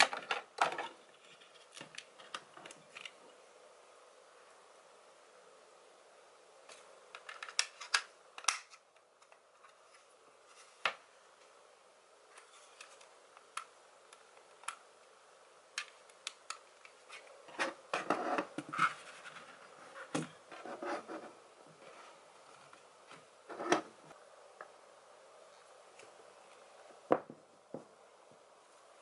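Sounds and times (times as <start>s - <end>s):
rubbing and knocking on desk: 17.6s - 22.2s.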